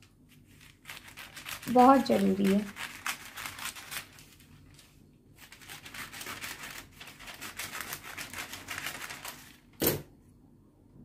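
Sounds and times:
scissors snipping paper: 0.6 - 4.3, 5.4 - 9.5.

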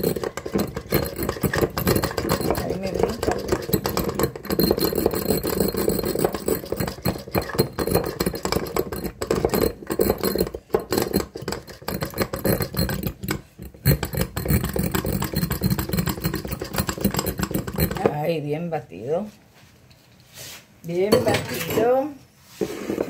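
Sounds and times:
spinning whisk whirring and rattling: 0.0 - 18.2.

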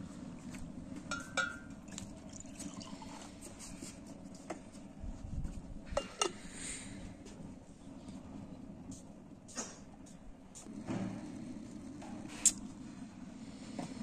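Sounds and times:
drink pouring into mug: 1.9 - 3.4.

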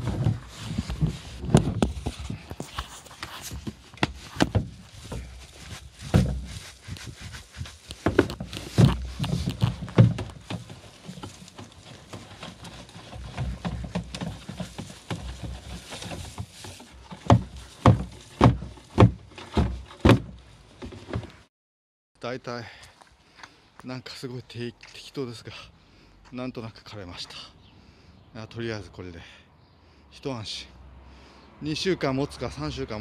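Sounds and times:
grass clippings rustling into bin: 0.0 - 19.1
grass box knocking against bin: 3.5 - 5.4, 6.0 - 7.2, 7.9 - 21.3.

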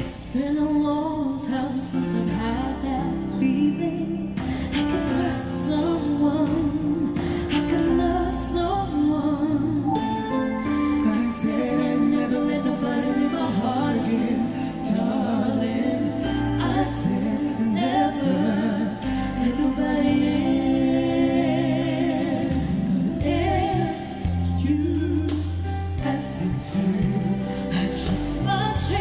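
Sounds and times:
woman singing: 0.0 - 29.0
man singing: 11.0 - 29.0.

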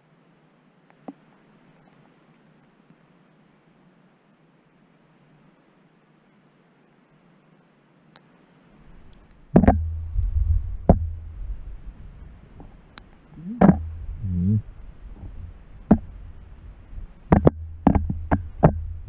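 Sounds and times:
sharp knocks: 9.6 - 10.0, 10.9 - 11.2, 13.4 - 14.0, 15.9 - 16.1, 17.3 - 18.9
low rumble: 9.7 - 11.9, 13.4 - 15.6.

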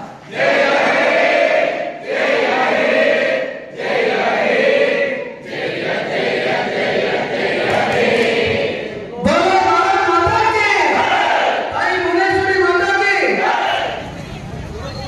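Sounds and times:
group singing in unison: 0.0 - 9.1.

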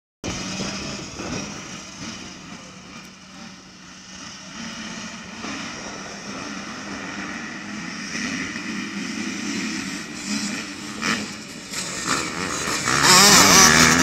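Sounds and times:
distant motocross bike engines: 0.2 - 14.0.

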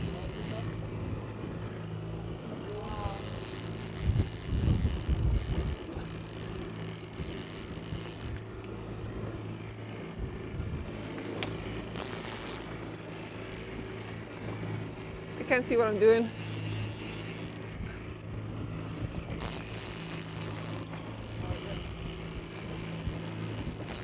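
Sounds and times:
fishing reel clicking: 0.0 - 0.7, 2.7 - 9.2, 11.3 - 17.8, 19.2 - 24.0
boat motor humming: 0.0 - 24.0.

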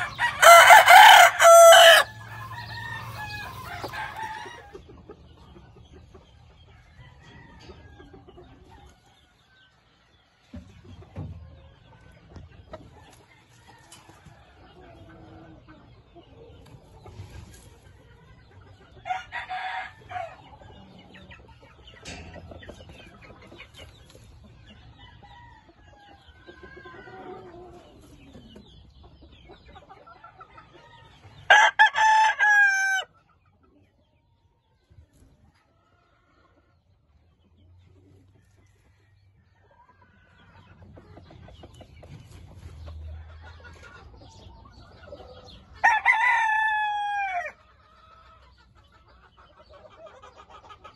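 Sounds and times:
rooster crowing: 0.0 - 4.7, 31.5 - 33.1, 45.8 - 47.6.

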